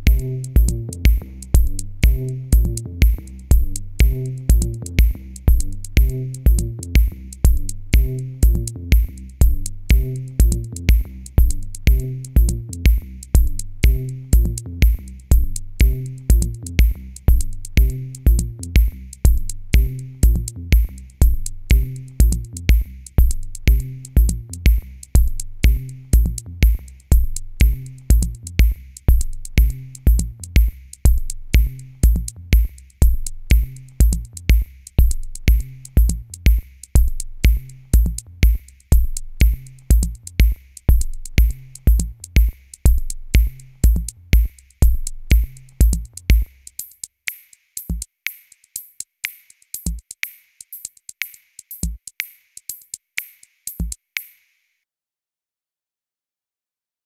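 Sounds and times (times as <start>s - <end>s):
bass line: 0.0s - 46.5s
low kick drum: 0.0s - 46.6s
drum machine beat: 0.0s - 54.6s.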